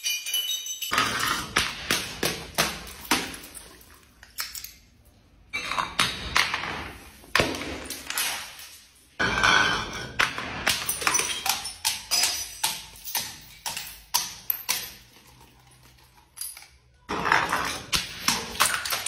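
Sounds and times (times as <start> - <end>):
glass breaking crash: 0.0 - 3.8
glass bottles clinking on stone steps: 0.0 - 6.7, 7.8 - 19.0.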